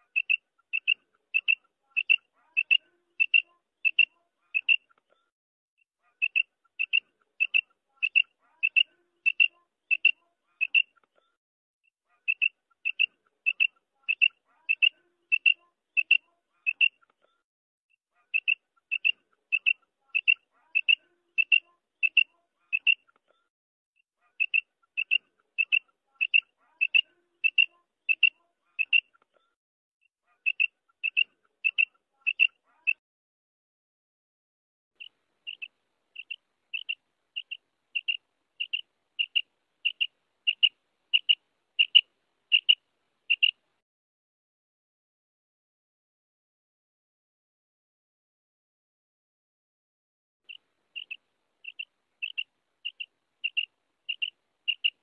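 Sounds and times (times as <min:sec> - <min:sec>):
quail calling: 0:00.0 - 0:05.0, 0:06.0 - 0:11.1, 0:12.1 - 0:17.0, 0:18.2 - 0:23.2, 0:24.2 - 0:29.2, 0:30.3 - 0:33.0, 0:35.0 - 0:43.6, 0:50.5 - 0:55.0.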